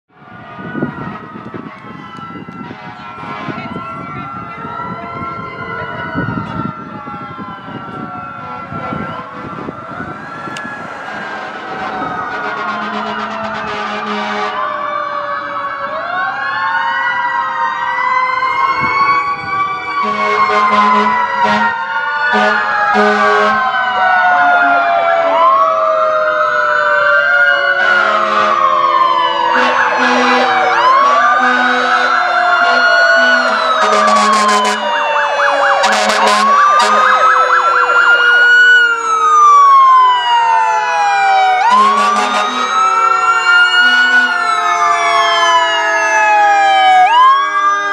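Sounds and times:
sirens wailing and yelping: 0:00.1 - 0:47.9
air horn blasts: 0:02.6 - 0:03.8, 0:11.1 - 0:14.6, 0:20.0 - 0:23.7, 0:27.8 - 0:28.6, 0:29.5 - 0:34.9, 0:35.8 - 0:37.2, 0:41.6 - 0:42.8, 0:43.8 - 0:44.4.

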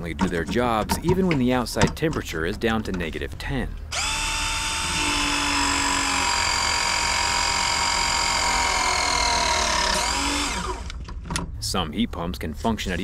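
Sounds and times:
press tool motor running: 0:03.9 - 0:11.0.

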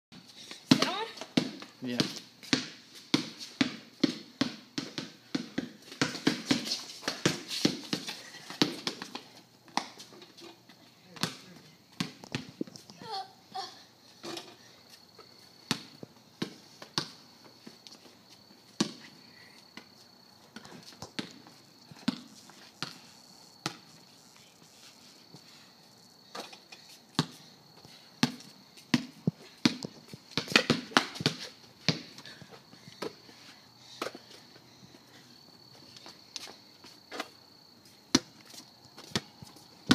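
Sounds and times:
basketball dribbled on pavement: 0:00.4 - 0:10.2, 0:11.1 - 0:12.7, 0:15.3 - 0:18.0, 0:18.7 - 0:19.1, 0:19.7 - 0:23.9, 0:26.2 - 0:34.4, 0:38.1 - 0:39.9.

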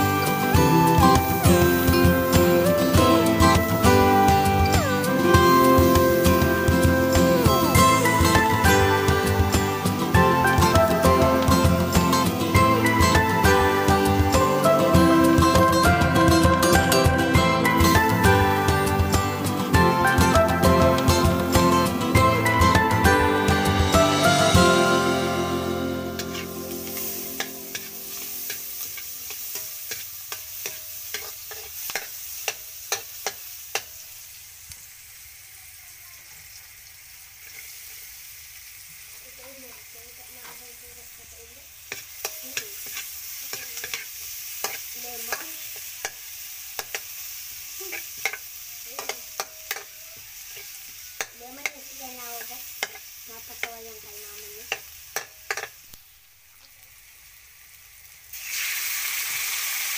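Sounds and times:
onion sizzling in hot oil: 0:00.0 - 0:59.9
metal spatula scraping wok: 0:25.3 - 0:34.0, 0:41.8 - 0:46.0, 0:47.8 - 0:55.8.

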